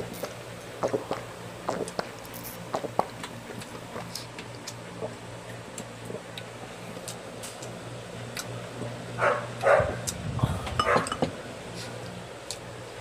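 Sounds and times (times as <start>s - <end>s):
steady low hum: 0.0s - 13.0s
chewing and lip-smacking: 0.1s - 7.7s, 9.6s - 10.2s.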